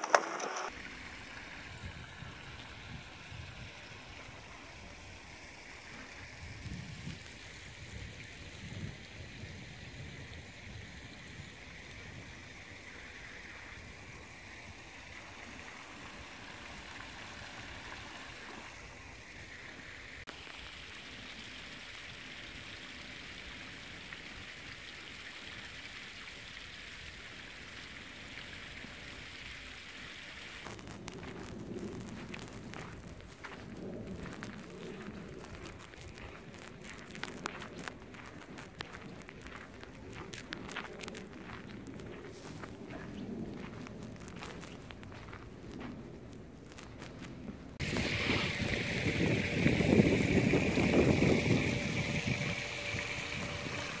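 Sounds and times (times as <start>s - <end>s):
uneven low rumble: 30.6s - 54.0s.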